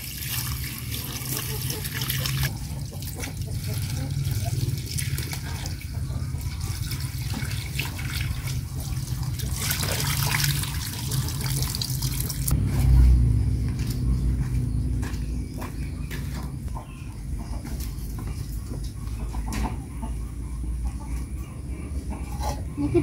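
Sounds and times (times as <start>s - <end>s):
hose water splashing on greens: 0.0s - 12.5s
low rumble: 12.5s - 16.7s.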